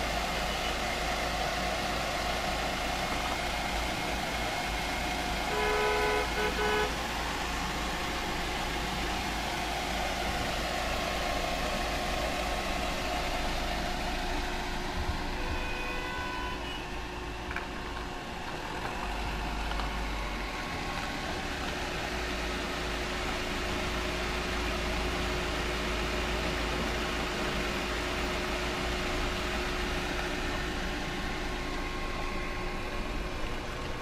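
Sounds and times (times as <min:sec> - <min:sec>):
steady background noise: 0:00.0 - 0:34.0
car horn honking: 0:05.4 - 0:07.1, 0:15.2 - 0:17.0.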